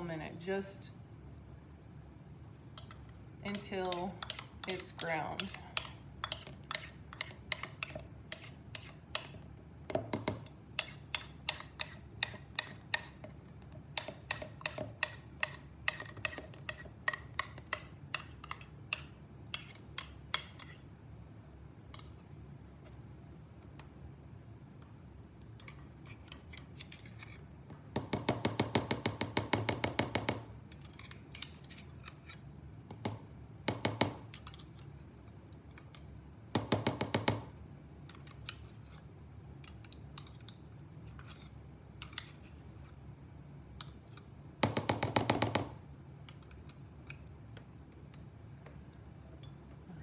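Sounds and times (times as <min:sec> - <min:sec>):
metal spoon scraping blender: 0:03.5 - 0:09.4.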